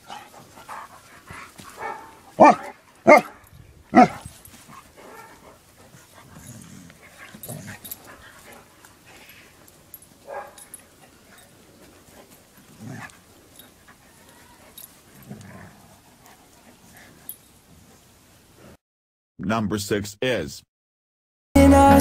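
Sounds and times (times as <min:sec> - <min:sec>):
dog barking: 0:01.8 - 0:04.3, 0:05.0 - 0:05.4, 0:10.2 - 0:10.7.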